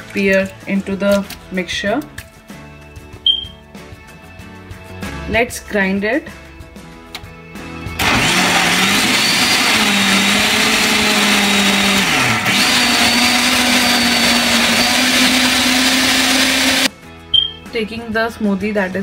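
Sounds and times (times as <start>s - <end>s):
electric blender running: 8.0s - 16.9s.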